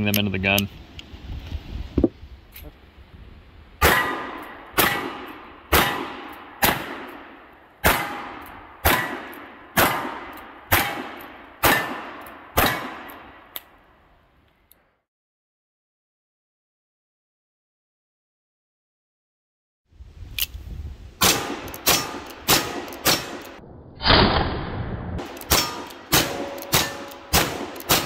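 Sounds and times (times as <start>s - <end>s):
steel target ringing: 25.5s - 28.0s.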